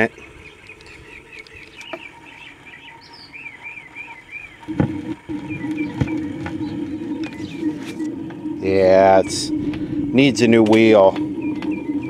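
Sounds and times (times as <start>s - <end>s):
birds chirping: 0.0s - 12.0s
record playing steady low tone: 0.0s - 12.0s
stylus thump through speakers: 4.7s - 8.6s.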